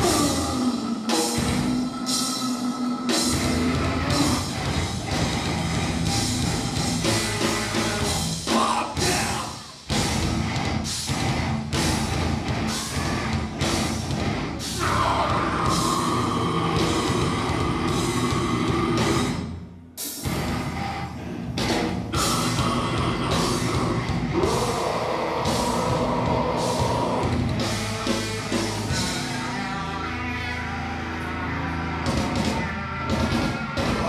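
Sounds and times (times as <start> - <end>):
person singing: 0.0 - 4.8, 7.4 - 9.8, 14.6 - 19.4, 22.1 - 34.0
bass guitar: 0.0 - 34.0
distorted guitars: 0.0 - 34.0
heavy metal band playing live: 0.0 - 34.0.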